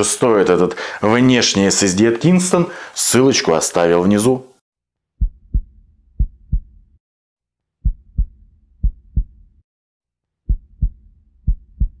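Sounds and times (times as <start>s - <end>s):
deep heartbeat thumps: 5.2s - 7.0s, 7.8s - 9.6s, 10.5s - 12.0s.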